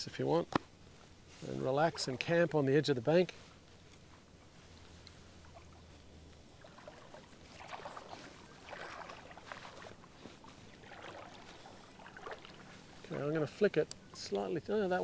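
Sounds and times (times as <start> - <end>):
feet wading through water: 3.5 - 13.6.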